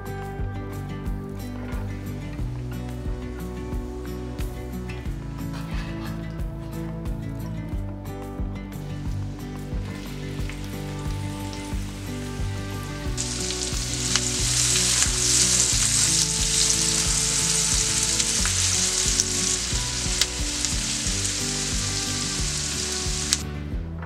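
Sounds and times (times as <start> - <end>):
onion sizzling in hot fat: 10.0 - 23.4.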